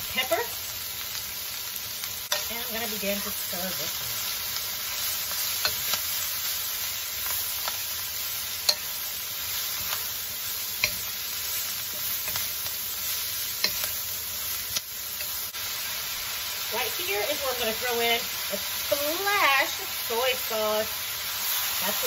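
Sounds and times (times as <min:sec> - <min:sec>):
cabbage sizzling in a wok: 0:00.0 - 0:22.0
spatula stirring in wok: 0:02.0 - 0:16.6
spatula tapping wok: 0:02.2 - 0:02.9, 0:05.0 - 0:15.6.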